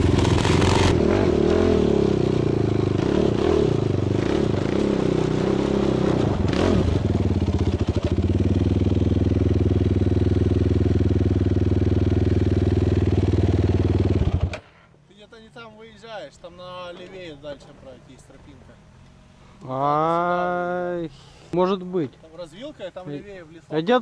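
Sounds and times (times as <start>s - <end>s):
quad bike engines running: 0.0s - 14.7s.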